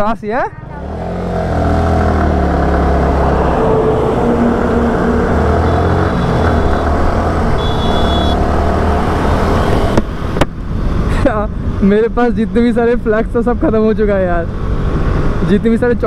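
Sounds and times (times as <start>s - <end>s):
motorcycle engine accelerating: 0.6s - 10.6s.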